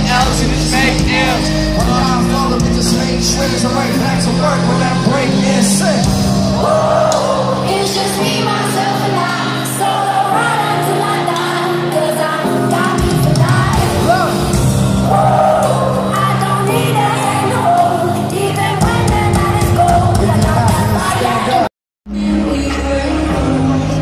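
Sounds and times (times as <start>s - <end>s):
live concert music: 0.0s - 24.0s
person singing: 0.0s - 24.0s
crowd yelling and whooping: 4.8s - 8.2s, 14.0s - 16.2s.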